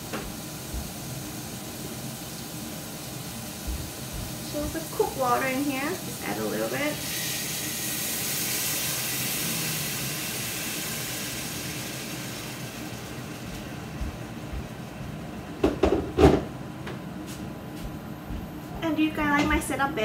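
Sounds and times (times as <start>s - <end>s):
liquid hissing in hot pot: 0.0s - 14.0s.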